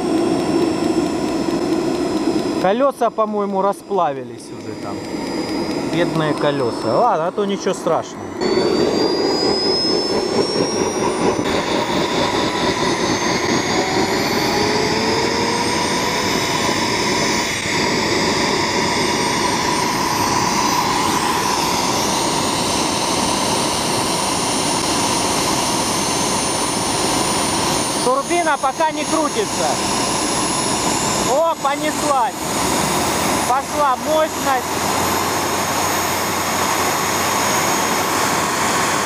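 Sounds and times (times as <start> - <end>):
gas turbine engine running: 0.0 - 39.0
high whistling tones: 3.4 - 16.2.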